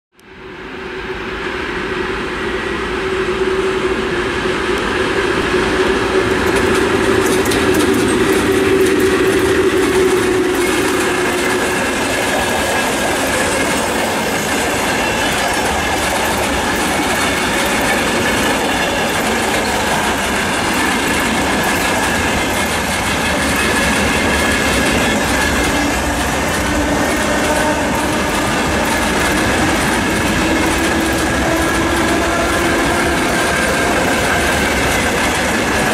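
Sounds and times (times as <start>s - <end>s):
electric locomotive humming: 0.2s - 35.9s
wheels clickety-clack over rail joints: 4.8s - 35.9s.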